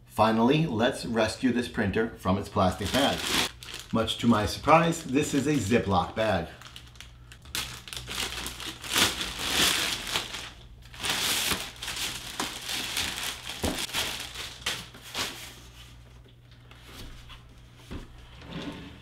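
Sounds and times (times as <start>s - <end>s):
plastic bag crinkling: 2.8s - 15.6s.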